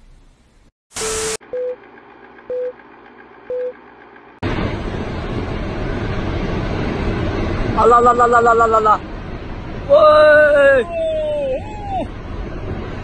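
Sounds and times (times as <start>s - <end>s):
short electronic beeps: 1.0s - 1.8s, 2.5s - 2.8s, 3.5s - 3.8s
landslide rushing noise: 4.4s - 13.0s.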